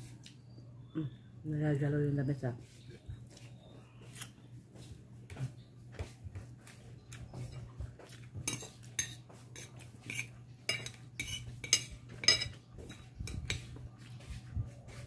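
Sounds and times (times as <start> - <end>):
cutlery clinking on glass plate: 8.4 - 13.7.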